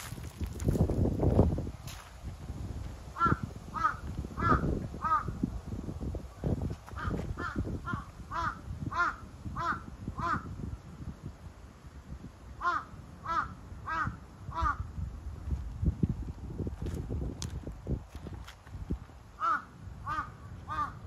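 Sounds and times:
crow cawing: 3.2s - 5.3s, 7.0s - 10.5s, 12.6s - 14.8s, 19.4s - 21.0s.

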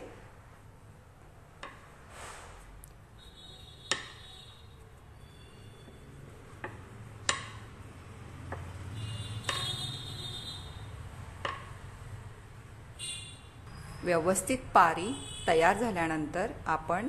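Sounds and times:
rolling pin tapping on countertop: 3.9s - 4.2s, 9.4s - 9.8s, 11.4s - 11.8s.

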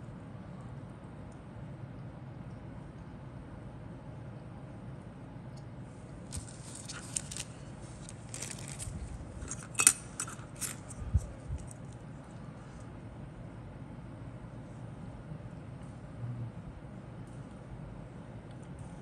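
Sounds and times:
plastic sprues clicking and rattling: 6.3s - 11.0s.

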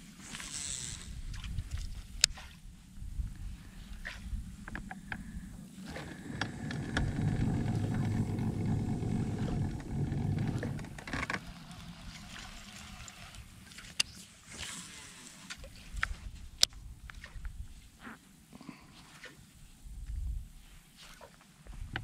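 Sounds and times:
fishing tackle hiss: 0.0s - 1.2s, 11.8s - 16.4s
boat motor running: 6.0s - 12.3s.

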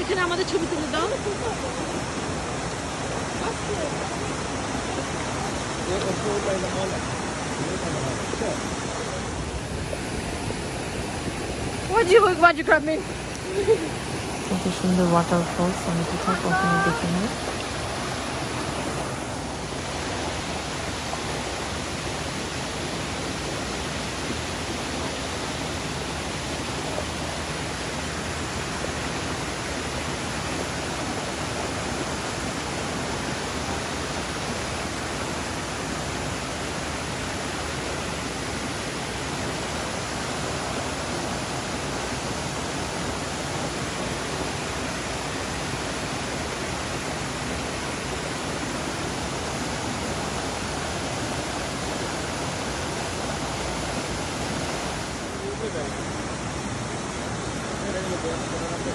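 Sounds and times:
waterfall crashing onto rocks: 0.0s - 14.4s.

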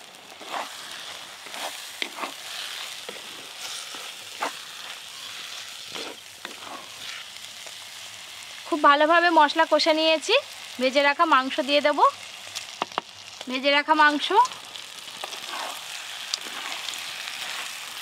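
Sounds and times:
masala sizzling in pot: 0.0s - 18.0s
spatula scraping pot: 0.4s - 7.3s, 15.2s - 17.8s.

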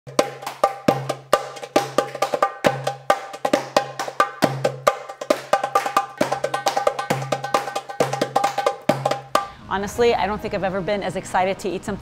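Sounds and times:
ringing percussion strikes: 0.1s - 9.6s.

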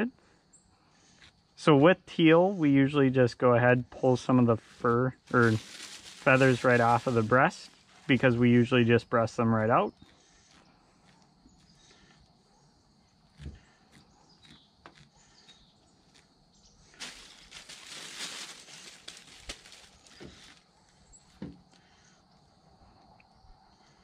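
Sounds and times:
feathers plucking rustles: 4.6s - 8.4s, 16.9s - 20.6s
plastic bag crinkling: 5.3s - 7.8s, 17.0s - 20.6s.

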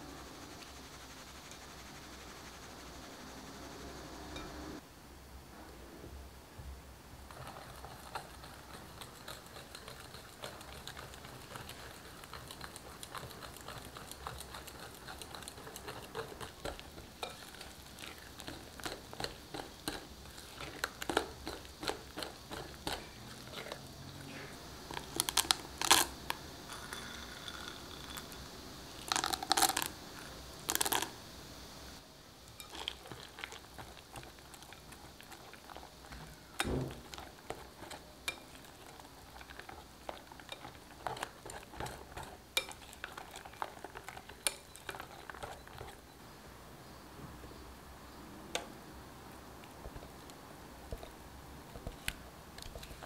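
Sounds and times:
whisk clattering: 7.3s - 23.7s
dull thump: 36.6s - 37.0s.

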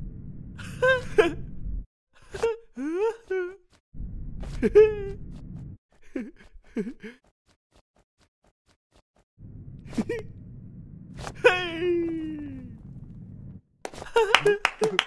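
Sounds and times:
low hum: 0.0s - 1.9s, 4.0s - 5.8s, 9.4s - 13.6s
cartoon wordless vocal sounds: 11.3s - 12.8s.

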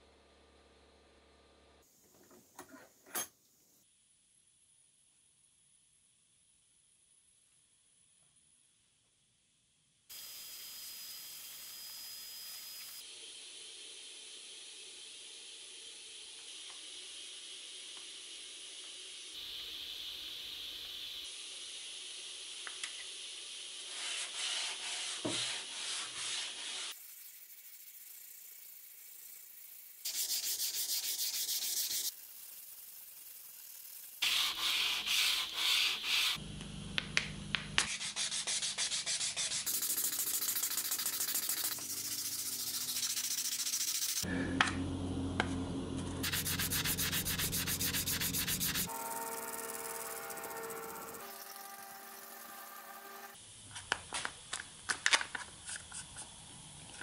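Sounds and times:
sandpaper rasping on metal: 23.9s - 27.0s, 30.0s - 32.1s, 34.2s - 36.4s, 37.9s - 44.3s, 46.2s - 53.4s.

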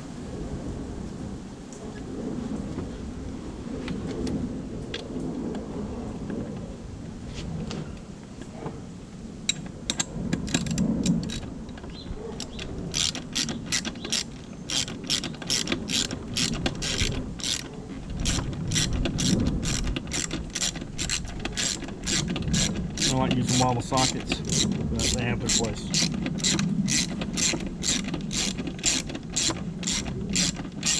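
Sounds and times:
ratchet wrench clicking: 12.4s - 30.9s.

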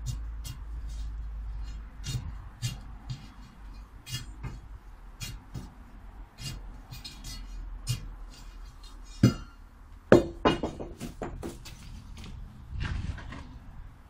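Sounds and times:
tools scraping into soil: 0.4s - 4.6s, 6.4s - 9.3s.

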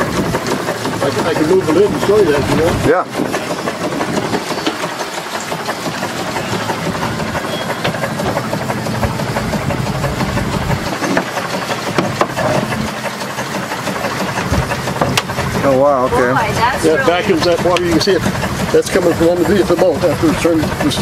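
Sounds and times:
steam engine clatter: 0.0s - 21.0s.

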